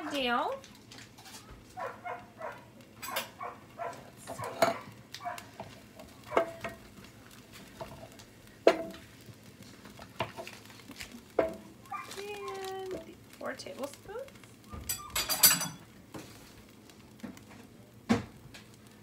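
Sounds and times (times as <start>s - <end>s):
utensil knocking in skillet: 4.3s - 9.2s, 9.8s - 11.8s.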